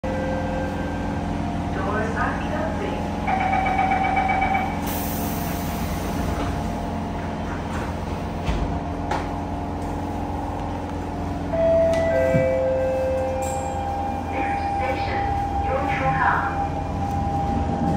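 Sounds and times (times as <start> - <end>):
train doors closing with a thud: 4.9 - 9.4, 11.6 - 13.8.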